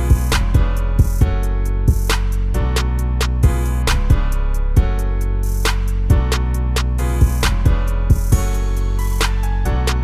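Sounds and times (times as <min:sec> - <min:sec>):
deep kick drum: 0:00.0 - 0:02.7, 0:03.4 - 0:05.1, 0:07.2 - 0:08.6
music with steady beat: 0:00.0 - 0:10.0.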